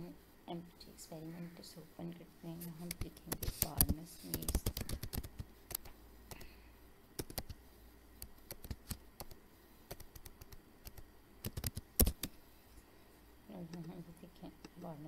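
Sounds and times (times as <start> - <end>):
computer keyboard typing: 2.9 - 6.5, 7.2 - 7.6, 8.2 - 12.3.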